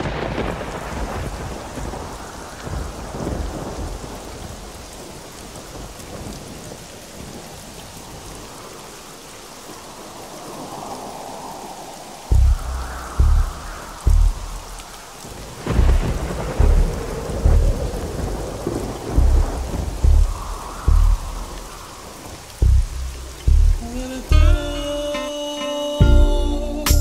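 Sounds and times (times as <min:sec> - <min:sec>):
thunder rolling: 0:00.0 - 0:05.0, 0:10.6 - 0:24.4
steady rain: 0:00.0 - 0:27.0.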